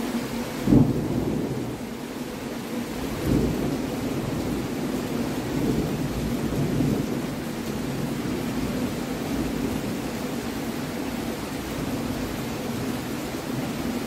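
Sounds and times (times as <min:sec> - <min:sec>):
steady rain: 0:00.0 - 0:14.0
thunder rumbling: 0:00.6 - 0:01.8, 0:03.2 - 0:10.0.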